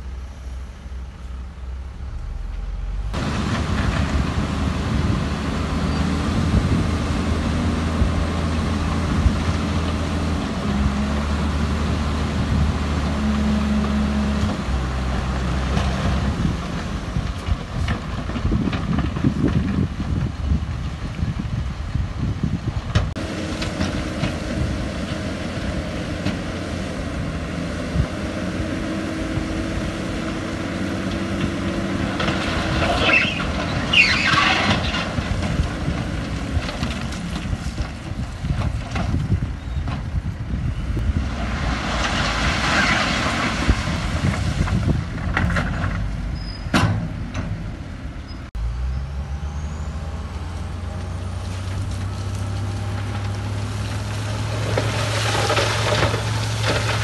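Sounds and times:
diesel construction machinery running: 0:00.0 - 0:57.0.

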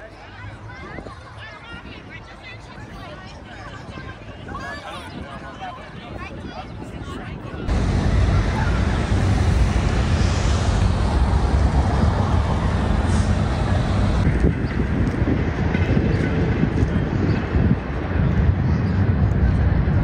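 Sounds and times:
low rumble and hiss: 0:07.7 - 0:14.3.

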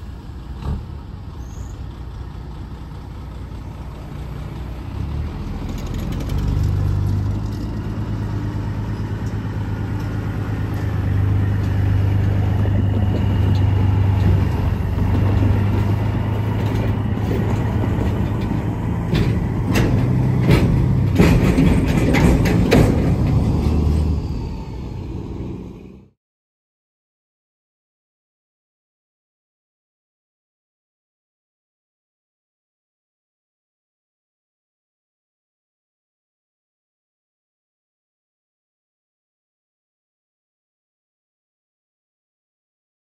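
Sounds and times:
diesel locomotive engine drone: 0:00.0 - 0:26.2
train wheels clicking and clanking: 0:09.0 - 0:24.0.

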